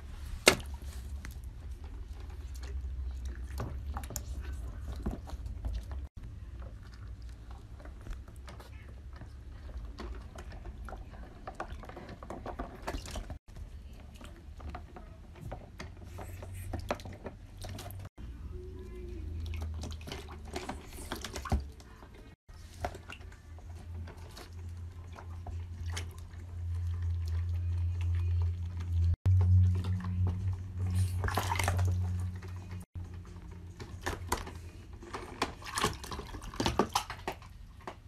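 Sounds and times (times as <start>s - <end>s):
water splashing in a tub: 9.7s - 14.6s, 16.7s - 34.4s, 35.1s - 38.0s.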